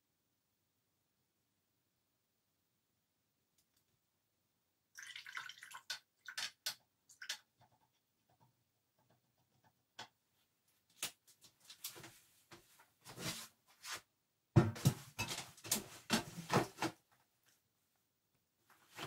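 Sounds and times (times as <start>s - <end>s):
tools scraping and clattering: 14.8s - 16.8s.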